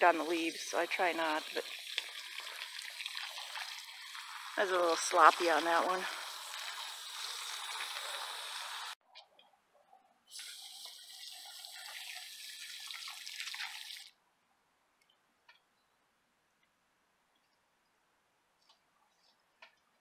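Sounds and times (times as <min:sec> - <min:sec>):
water spraying from hose nozzle: 0:00.0 - 0:09.0, 0:10.3 - 0:14.1.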